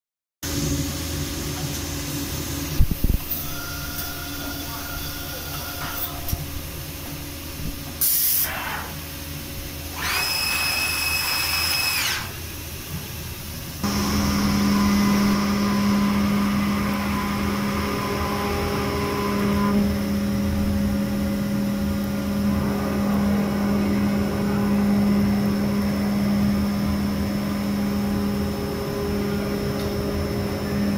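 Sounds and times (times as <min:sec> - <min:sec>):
spindle machining hum: 0:00.5 - 0:30.9
short hissing bursts: 0:08.0 - 0:08.9
rising whine: 0:13.7 - 0:30.9.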